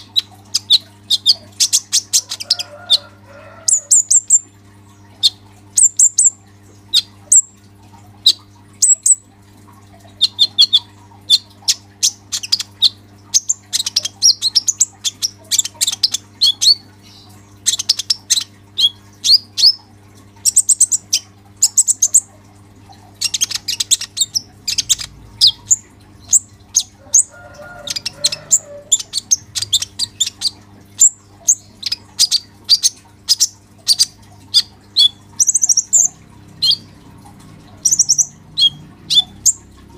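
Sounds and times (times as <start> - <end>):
faint steady hum: 0.0 - 39.9
sunbird chirps and trills: 37.8 - 39.6.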